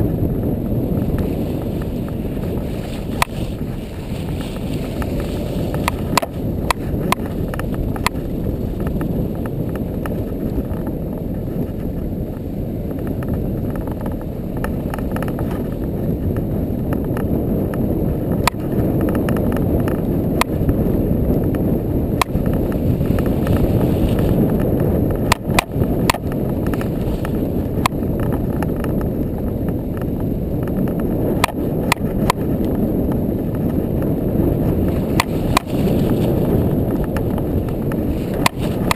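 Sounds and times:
engine and tyres rumbling: 0:00.0 - 0:38.9
sharp knocks and clicks: 0:05.7 - 0:10.9.

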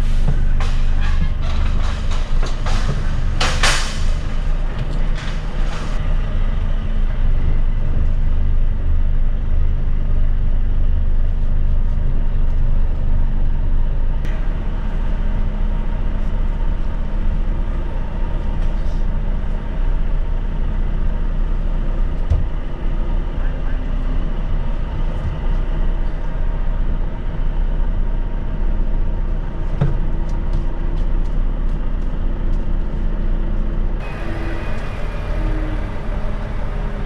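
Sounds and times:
diesel engine drone in cab: 0:00.0 - 0:37.0.

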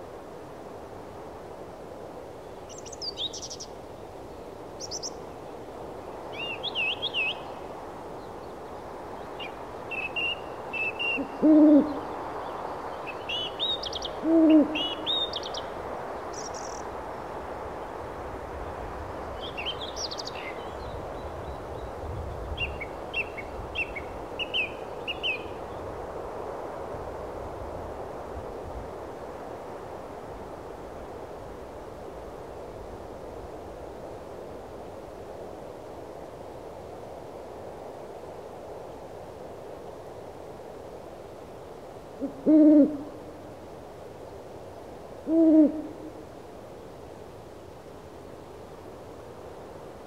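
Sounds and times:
owl hooting: 0:09.9 - 0:12.0, 0:14.2 - 0:15.3, 0:42.2 - 0:43.1, 0:45.2 - 0:46.1.

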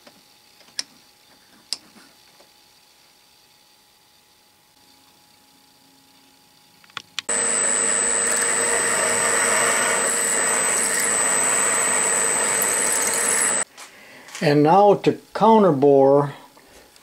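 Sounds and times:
clicks: 0:07.3 - 0:13.6
drill press drilling into metal: 0:07.3 - 0:13.6.

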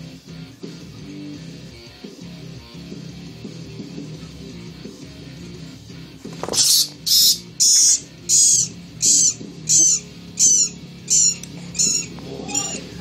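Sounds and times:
background music: 0:00.0 - 0:13.0
rat squealing: 0:06.4 - 0:13.0.

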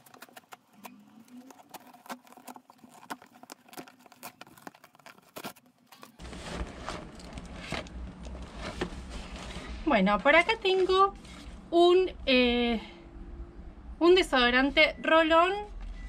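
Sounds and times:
cardboard box handling: 0:00.0 - 0:09.6.

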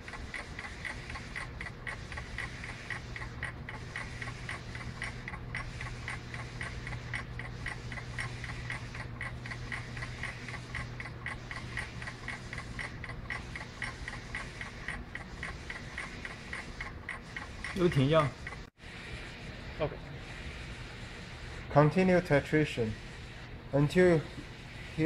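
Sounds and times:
rapid high ticking beeps: 0:00.0 - 0:18.7.

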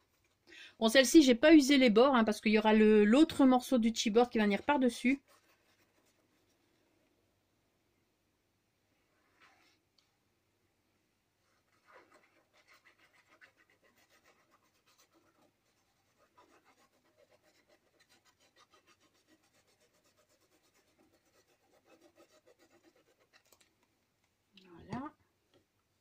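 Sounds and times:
glue bottle tip scratching paper: 0:11.6 - 0:23.7.

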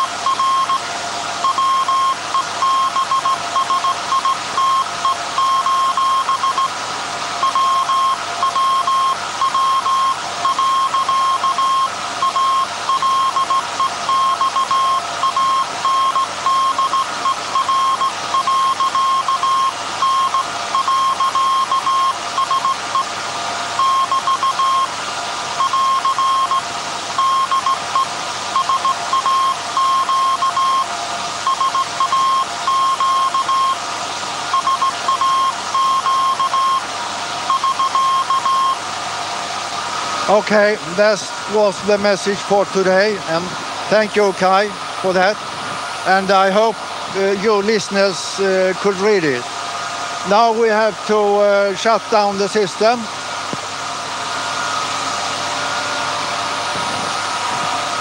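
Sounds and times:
morse code tone: 0:00.0 - 0:00.8, 0:01.4 - 0:06.8, 0:07.4 - 0:23.1, 0:23.8 - 0:24.9, 0:25.6 - 0:26.6, 0:27.2 - 0:33.8, 0:34.5 - 0:36.9, 0:37.5 - 0:38.8
steady machine noise: 0:00.0 - 0:58.0.

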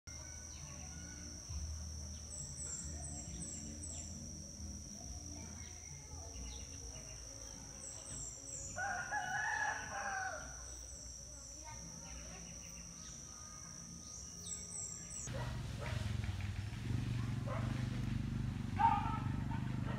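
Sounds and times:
steady high-pitched tone: 0:00.1 - 0:15.3
small bird chirping: 0:00.3 - 0:16.3
rooster crowing: 0:08.8 - 0:10.7.

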